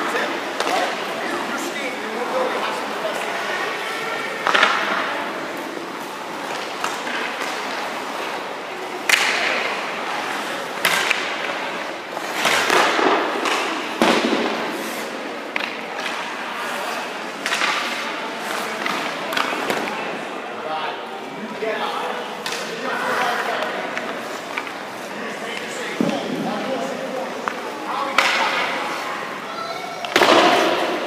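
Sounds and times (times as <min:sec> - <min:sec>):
skates scraping on ice: 0:00.0 - 0:20.2, 0:22.4 - 0:31.0
stick and puck knocks: 0:09.0 - 0:09.7, 0:10.8 - 0:11.5, 0:12.4 - 0:14.6, 0:17.4 - 0:18.0, 0:27.4 - 0:28.8, 0:30.1 - 0:31.0.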